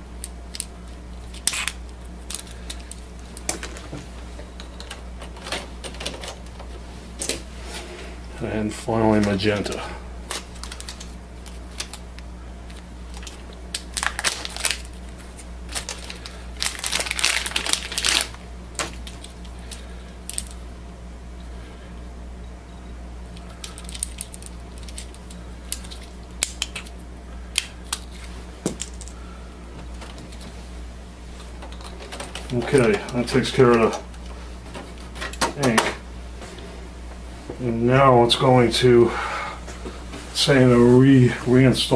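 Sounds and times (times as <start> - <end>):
steady low hum: 0.0 - 41.9
foil pouch crinkling and tearing: 0.2 - 3.6, 10.2 - 12.1, 12.7 - 20.6, 23.4 - 29.2.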